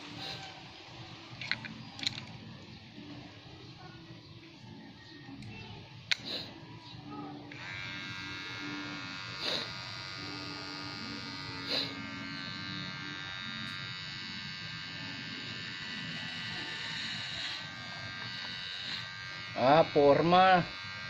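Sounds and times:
electric hair clipper buzzing: 0.0s - 0.6s, 7.5s - 21.0s.

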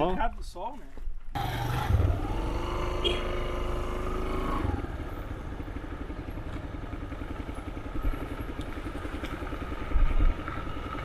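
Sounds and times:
motorcycle engine running: 1.4s - 11.0s.

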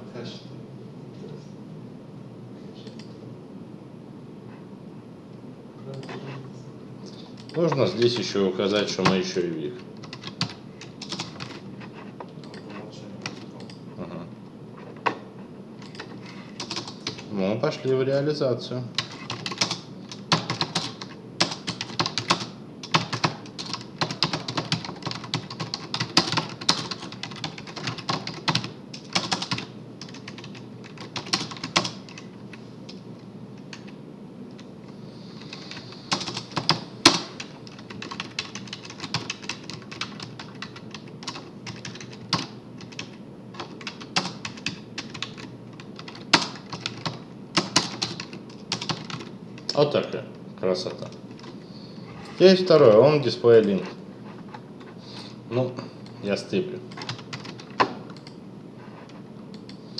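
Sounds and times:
typing on a computer keyboard: 10.0s - 11.6s, 15.8s - 17.3s, 19.0s - 32.3s, 33.7s - 34.0s, 35.4s - 49.8s, 56.9s - 58.4s.

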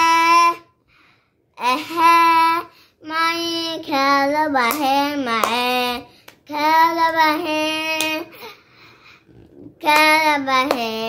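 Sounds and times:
boy singing a hymn unaccompanied: 9.8s - 11.0s.

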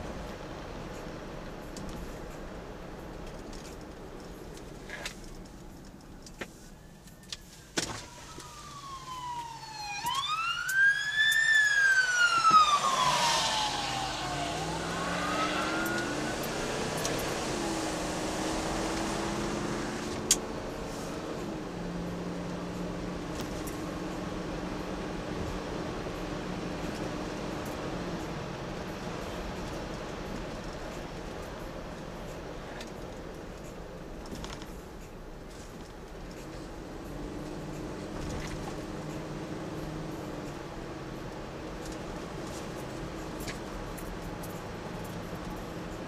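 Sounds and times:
car engine and road noise: 0.0s - 46.0s
emergency siren wailing: 7.9s - 20.1s.

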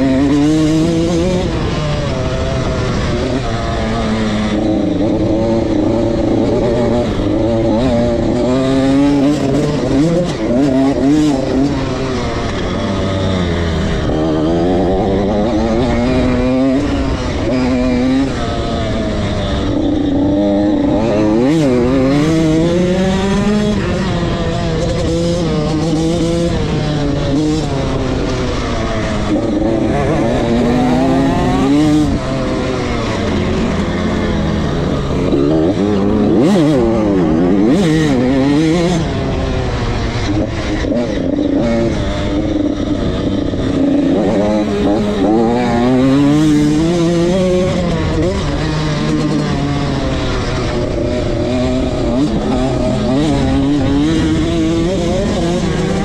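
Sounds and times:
dirt bike engine revving: 0.0s - 56.0s.

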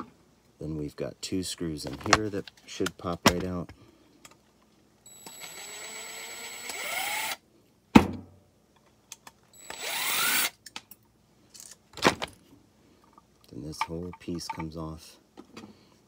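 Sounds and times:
cordless drill motor whine: 5.1s - 7.4s, 9.6s - 10.5s.

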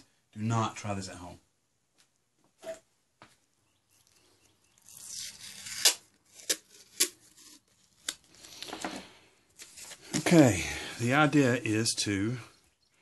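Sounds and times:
tape pulled off a roll: 4.8s - 10.2s
paper rustling: 4.8s - 10.4s.

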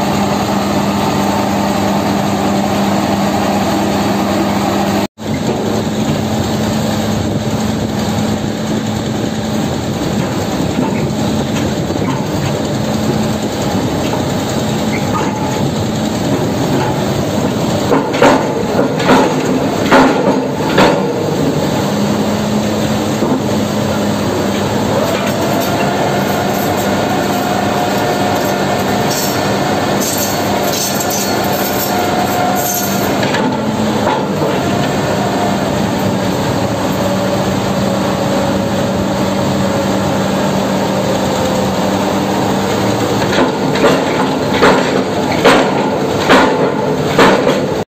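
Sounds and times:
drilling rig machinery hum: 0.0s - 47.8s
sharp knocks: 43.2s - 47.8s.

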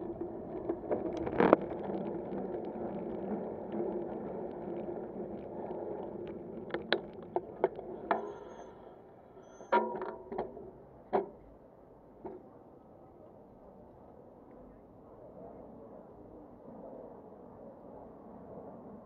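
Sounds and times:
bicycle tyres and wind rushing: 0.0s - 12.2s.

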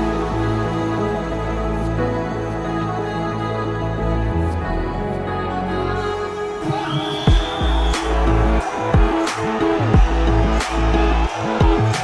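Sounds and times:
music with long held notes: 0.0s - 12.0s
steady bass: 7.6s - 9.1s, 9.8s - 12.0s.

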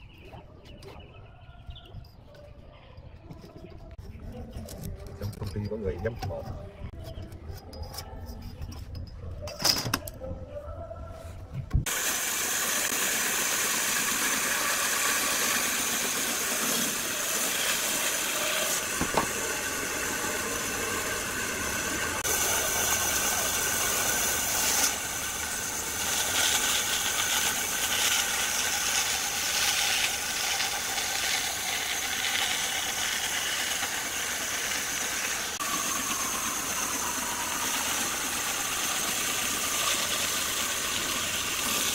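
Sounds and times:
band saw cutting wood: 11.9s - 41.9s.

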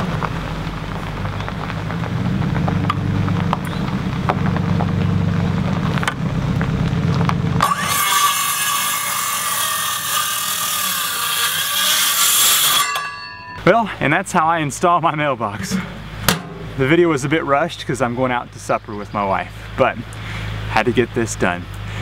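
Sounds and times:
circular saw cutting wood: 7.6s - 13.3s.

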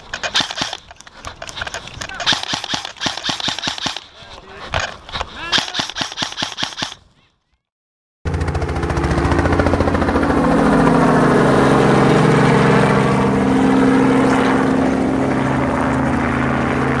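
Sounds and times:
helicopter rotor beat: 0.0s - 7.1s, 8.3s - 17.0s.

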